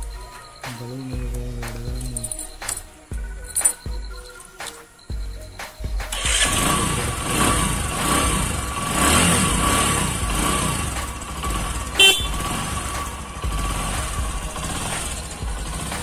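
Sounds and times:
motorcycle engine running: 5.1s - 16.0s
motorcycle horn toot: 6.1s - 14.0s.

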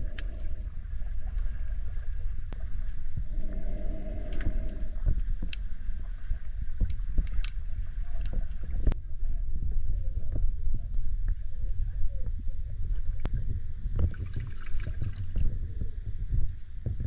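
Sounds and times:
muffled underwater rumble: 0.0s - 17.0s
sharp clicks and pops: 6.8s - 9.0s.

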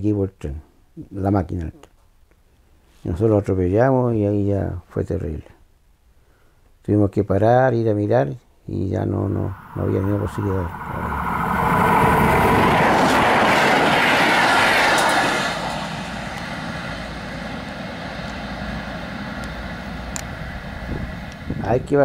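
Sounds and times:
train passing on rails: 9.0s - 22.0s.

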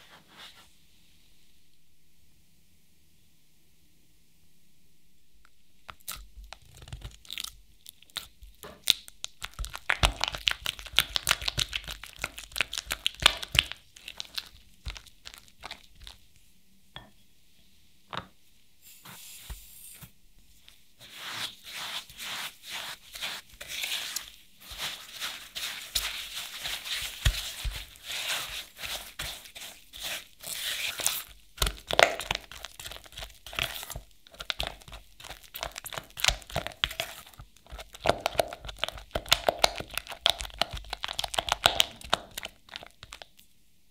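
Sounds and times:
sugar pouring hiss: 18.8s - 20.2s
spatula mixing in glass bowl: 21.0s - 43.2s.

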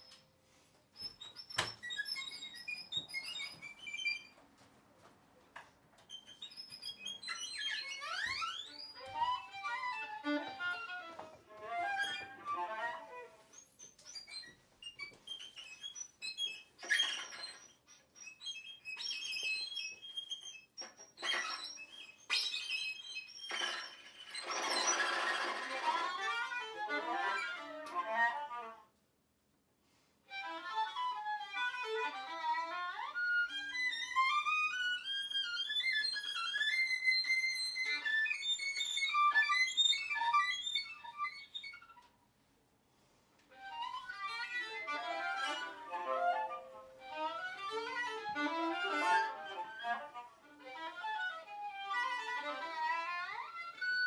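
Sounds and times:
violin and viola playing: 7.8s - 13.5s, 24.5s - 28.8s, 30.4s - 41.0s, 43.5s - 54.0s.

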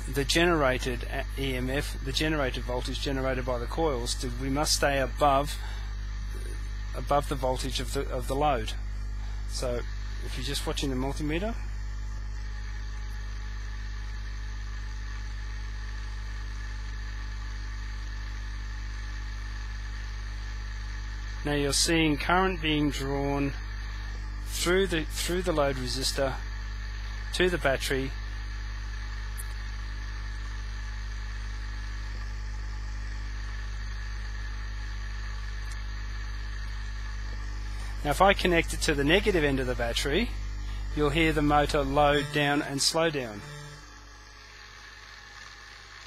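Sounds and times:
motor-generator humming: 0.0s - 46.0s
thin high tone: 40.9s - 44.0s.

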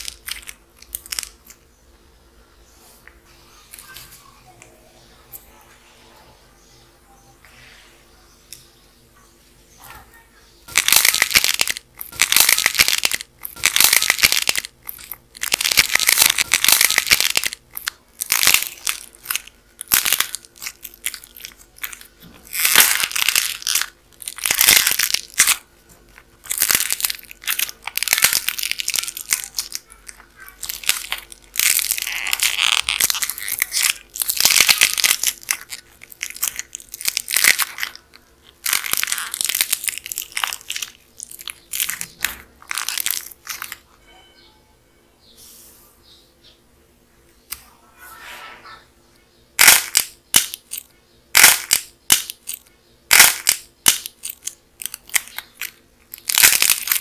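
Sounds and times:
dried clay crust cracking: 10.7s - 43.9s, 49.6s - 57.0s.

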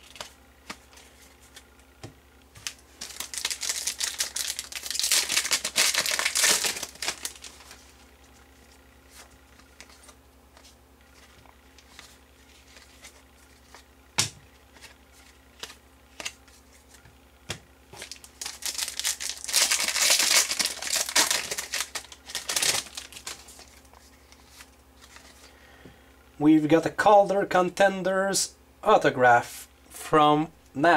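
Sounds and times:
foil wrapper crinkling: 2.6s - 8.0s, 17.9s - 25.4s.

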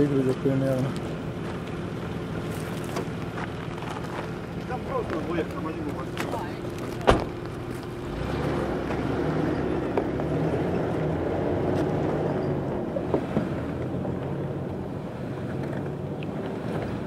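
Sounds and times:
car engine running low: 0.0s - 17.0s
tyres on stones: 2.4s - 8.0s.

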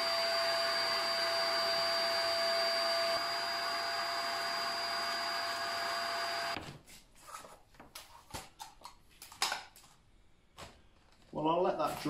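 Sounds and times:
vacuum cleaner whining: 0.0s - 6.6s.

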